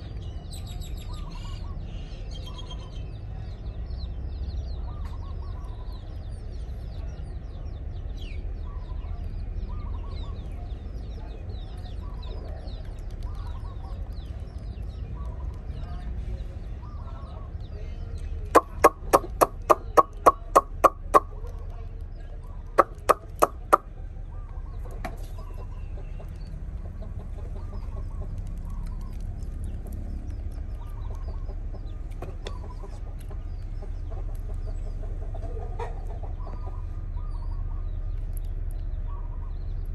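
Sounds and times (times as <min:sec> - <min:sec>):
soft bird chirps: 0:00.0 - 0:39.9
bird sharp calls: 0:18.5 - 0:21.4, 0:22.6 - 0:26.2.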